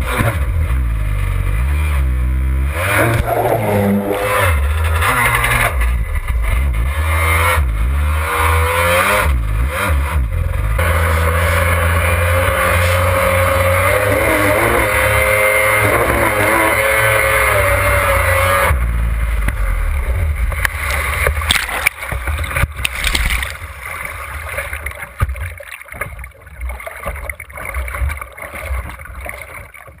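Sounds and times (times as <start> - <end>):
jet ski engine running hard: 2.9 - 5.0, 8.5 - 24.8
rushing splashing water: 20.4 - 30.0
water slaps: 20.5 - 30.0.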